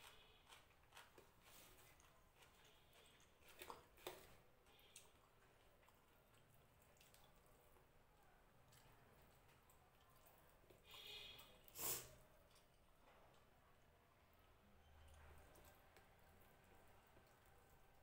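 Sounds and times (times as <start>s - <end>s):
fingers mixing rice on plate: 0.0s - 7.3s.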